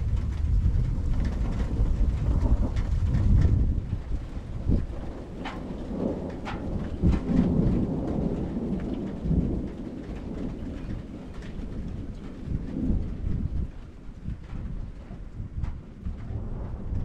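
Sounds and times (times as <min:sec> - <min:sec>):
rain falling: 0:00.0 - 0:17.0
sharp raindrop taps: 0:00.0 - 0:17.0
thunder rumbling: 0:00.0 - 0:17.0.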